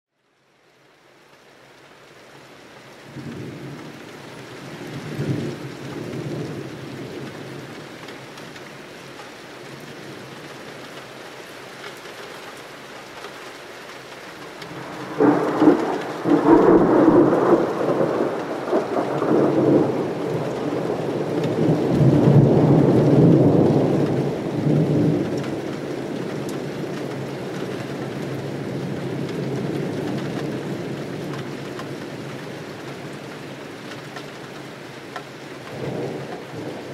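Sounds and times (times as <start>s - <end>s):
steady rain: 0.1s - 36.9s
thunder rumbling: 14.7s - 27.4s, 35.7s - 36.9s.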